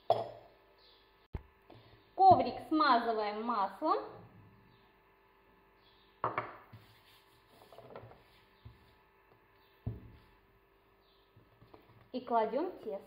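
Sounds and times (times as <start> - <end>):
light rubbing on baking mat: 6.7 - 9.1.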